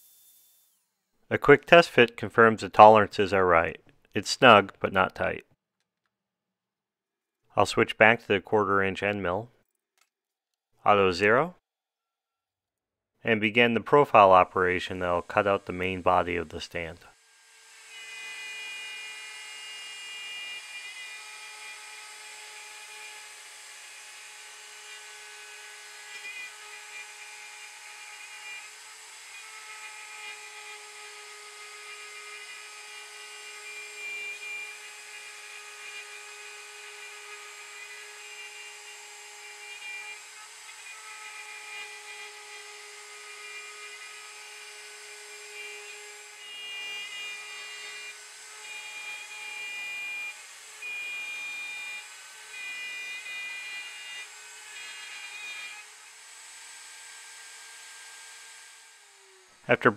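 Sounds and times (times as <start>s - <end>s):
router spindle whining: 17.2s - 59.6s.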